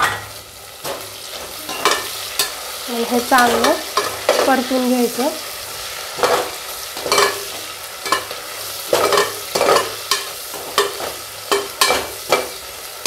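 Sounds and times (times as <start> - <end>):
food sizzling in oil: 0.0 - 13.0.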